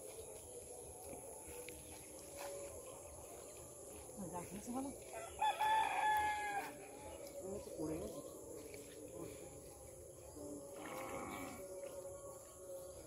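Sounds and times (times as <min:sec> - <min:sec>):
insect drone: 0:07.4 - 0:13.0.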